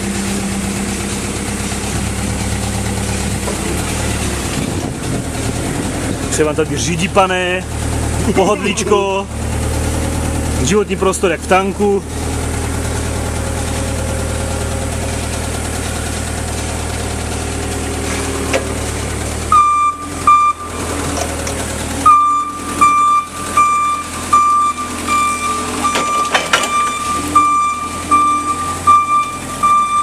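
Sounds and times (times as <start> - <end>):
forklift engine idling: 0.0 - 30.0
reversing alarm beeps: 19.5 - 20.8, 22.0 - 30.0.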